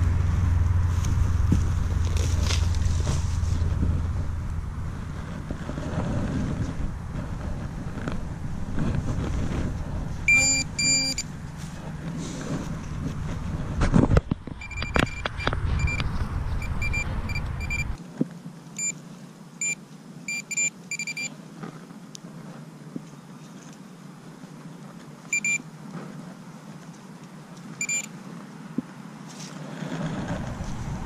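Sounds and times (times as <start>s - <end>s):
wind rumble on microphone: 0.0s - 18.0s, 28.7s - 31.0s
metal detector pinpointer beeping: 10.3s - 11.3s, 14.6s - 18.0s, 18.8s - 19.0s, 19.6s - 21.3s, 25.3s - 25.6s, 27.8s - 28.1s.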